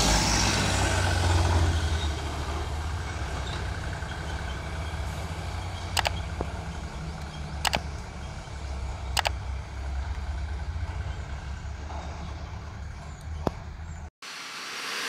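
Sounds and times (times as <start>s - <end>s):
truck diesel engine rumble: 0.0s - 14.1s
sharp double clicks: 5.9s - 6.5s, 7.2s - 8.1s, 9.1s - 9.4s.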